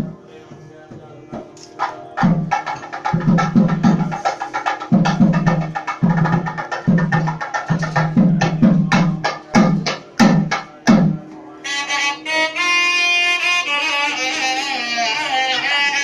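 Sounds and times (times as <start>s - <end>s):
hand drum strokes: 0.0s - 11.5s.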